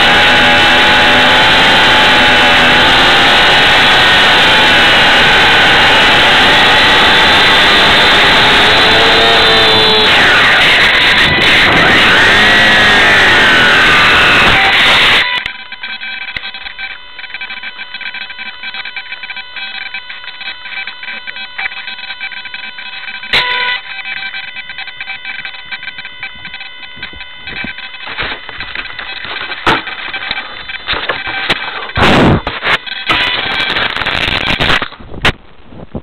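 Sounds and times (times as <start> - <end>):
steady electrical whine: 0.0 - 36.0
clicks and crackles: 15.3 - 35.4.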